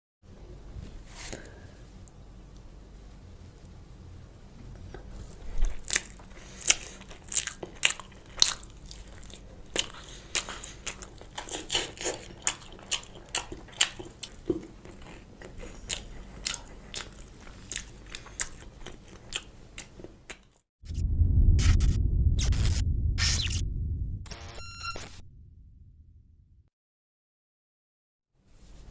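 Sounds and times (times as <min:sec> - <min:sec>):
crunchy chewing: 0:04.9 - 0:20.6.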